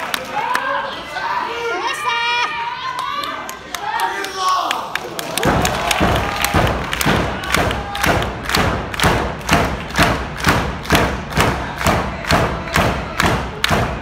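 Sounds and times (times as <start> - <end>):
crowd thumping in unison: 5.4 - 14.0.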